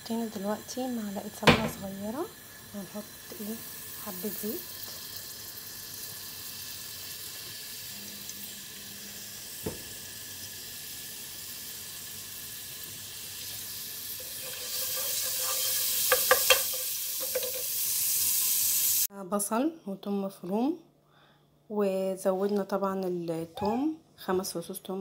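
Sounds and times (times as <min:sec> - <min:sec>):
oil sizzling in a frying pan: 0:00.0 - 0:19.1
wooden spatula knocking on pan: 0:16.1 - 0:17.6.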